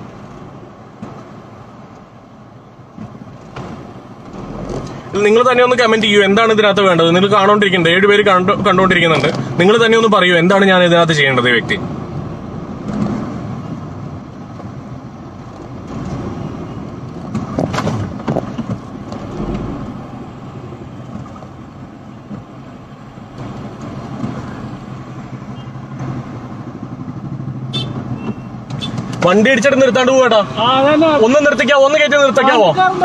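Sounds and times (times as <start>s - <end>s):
car engine and road noise: 0.0s - 33.0s
brief sharp sound: 19.2s - 20.6s.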